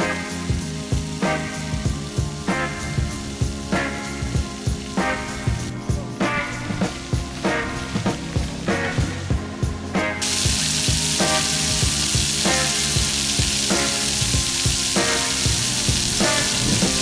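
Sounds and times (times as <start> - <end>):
background music: 0.0 - 17.0
water drops falling on paving: 10.2 - 17.0.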